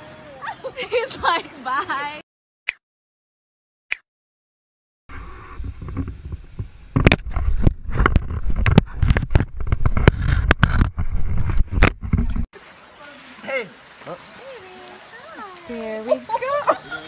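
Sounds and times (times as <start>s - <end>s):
knocks and scrapes on camera: 5.5s - 12.5s.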